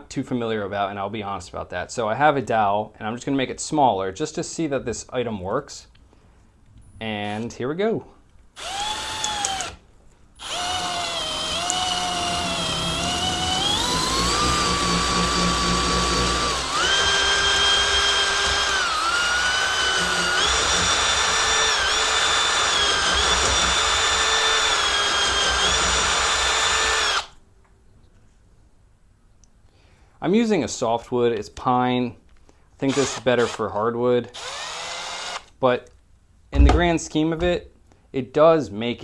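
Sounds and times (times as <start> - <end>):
cordless drill motor whine: 8.6 - 9.8, 10.4 - 27.3, 34.4 - 35.5
cutter shaving wooden dowel: 8.6 - 9.8, 10.4 - 27.3.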